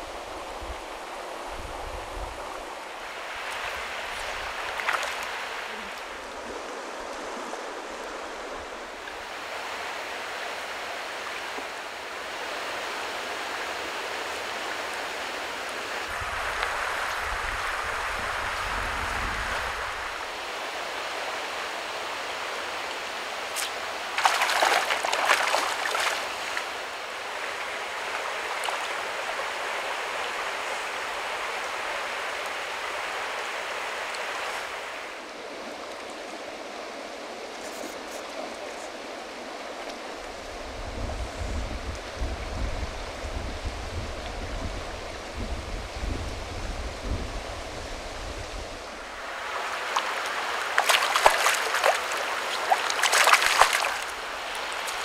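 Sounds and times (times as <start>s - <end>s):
creek flowing over stones: 0.0s - 40.5s, 48.9s - 55.0s.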